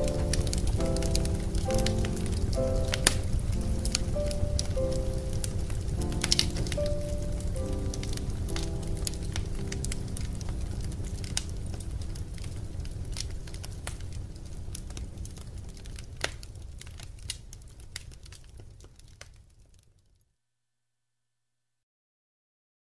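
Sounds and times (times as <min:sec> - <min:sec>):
low rumble: 0:00.0 - 0:16.3
bonfire crackling and popping: 0:00.0 - 0:20.2.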